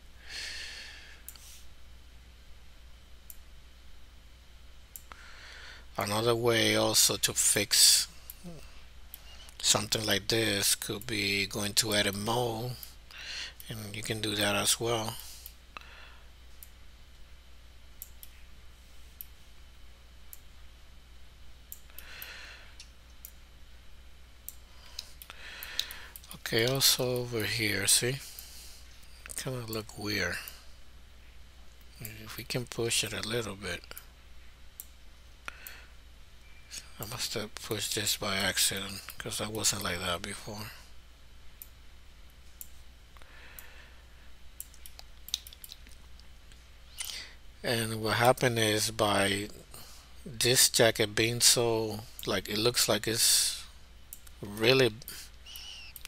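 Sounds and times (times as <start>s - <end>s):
soft hiss: 0.0s - 56.0s
steady low hum: 0.0s - 56.0s
computer mouse clicks: 44.6s - 46.0s.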